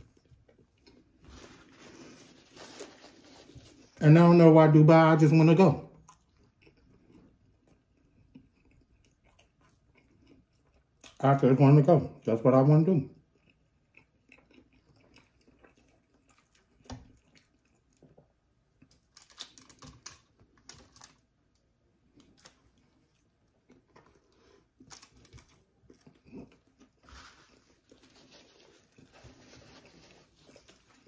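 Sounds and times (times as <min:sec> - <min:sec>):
foil crinkling: 0:01.3 - 0:04.0
chewing mouth sounds: 0:06.0 - 0:11.2, 0:13.2 - 0:19.1.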